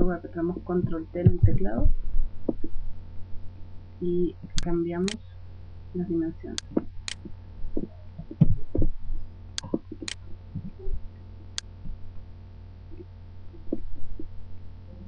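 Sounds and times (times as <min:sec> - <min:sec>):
steady low hum: 0:00.0 - 0:15.0
dull thumps: 0:00.8 - 0:01.8, 0:06.6 - 0:09.0.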